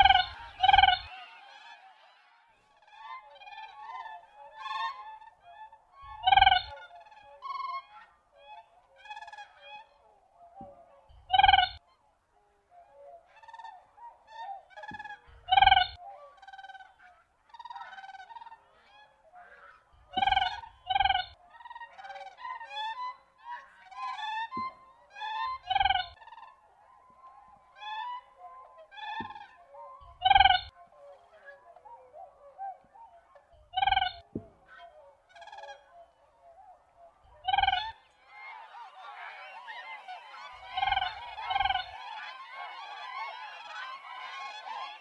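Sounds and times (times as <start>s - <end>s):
cranes honking: 0.0s - 2.0s, 38.0s - 45.0s.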